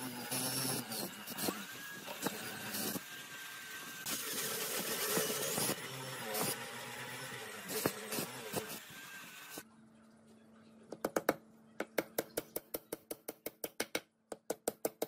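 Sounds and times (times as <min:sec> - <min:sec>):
electric drill boring into wood: 0:00.0 - 0:09.6.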